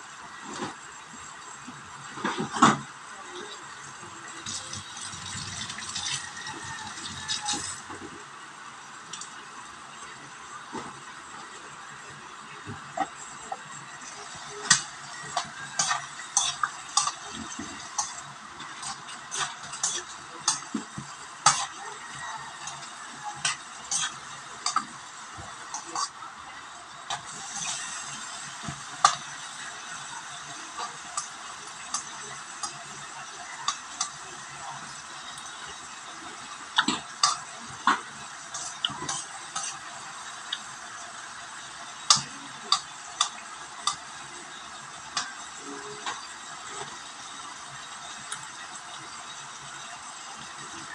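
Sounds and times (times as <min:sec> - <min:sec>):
vegetables sizzling in a wok: 0:00.0 - 0:50.9
steady hiss: 0:07.2 - 0:50.8
spatula scraping a pan: 0:12.7 - 0:26.2, 0:27.0 - 0:44.3.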